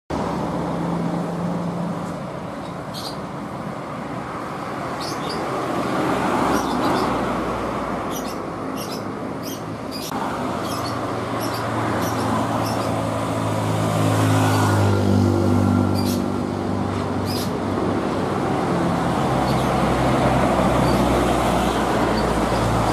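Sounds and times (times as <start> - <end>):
road traffic passing: 0.1 - 22.9.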